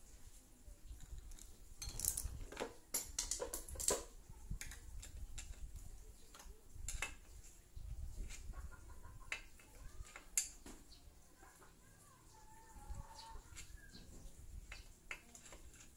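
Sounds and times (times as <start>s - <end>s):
hand tools clinking on metal: 1.8s - 4.1s.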